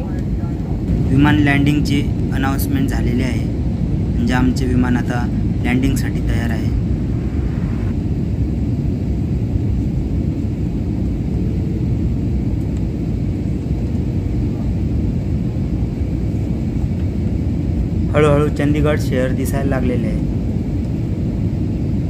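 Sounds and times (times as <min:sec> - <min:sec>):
airliner cabin rumble: 0:00.0 - 0:22.0.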